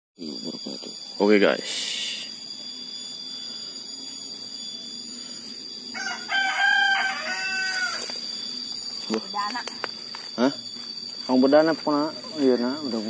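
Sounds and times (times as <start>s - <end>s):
steady high-pitched hum: 0.2s - 13.0s
rooster crowing: 5.9s - 8.4s.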